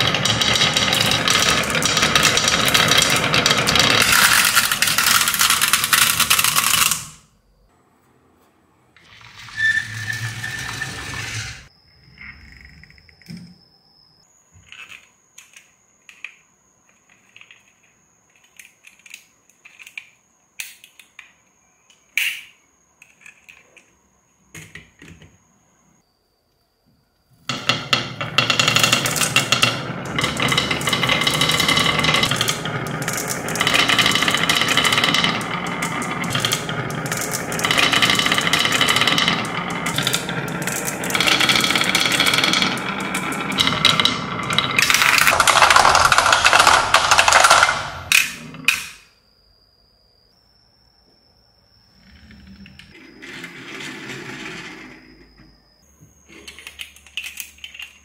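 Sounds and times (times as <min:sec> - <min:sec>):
marbles rolling down wooden slope: 0:00.0 - 0:07.2, 0:09.0 - 0:11.7, 0:27.5 - 0:48.9.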